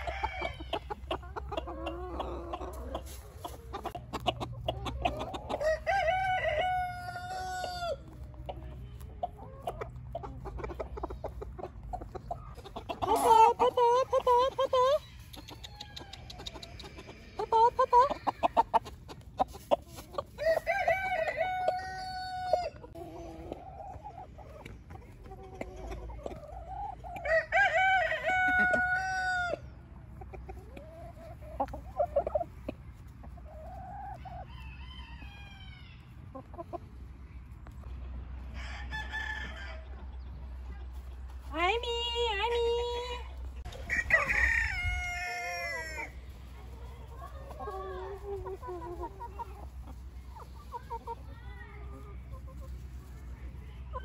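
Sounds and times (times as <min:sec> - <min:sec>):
chickens clucking: 0:00.0 - 0:54.0
rooster crowing: 0:05.6 - 0:08.0, 0:20.4 - 0:22.8, 0:43.8 - 0:46.1.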